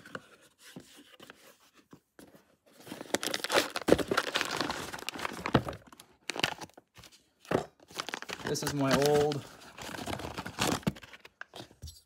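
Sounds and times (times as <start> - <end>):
plastic packaging crinkling: 2.8 - 7.0, 7.8 - 11.6.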